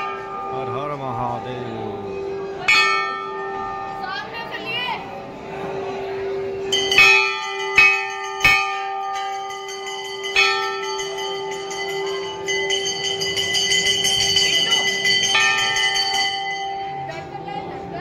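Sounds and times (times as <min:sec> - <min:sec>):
brass temple bells ringing: 0:00.0 - 0:04.7, 0:06.0 - 0:17.4.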